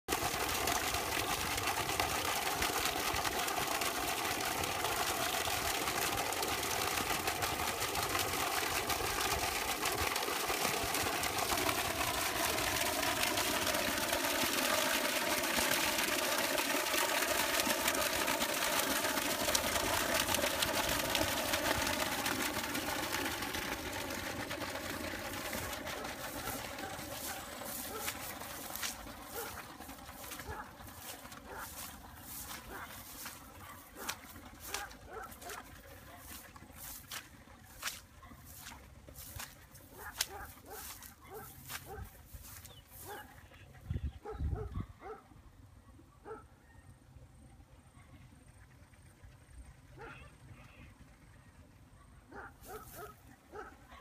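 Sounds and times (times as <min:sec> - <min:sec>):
water falling and splashing: 0:00.1 - 0:42.6.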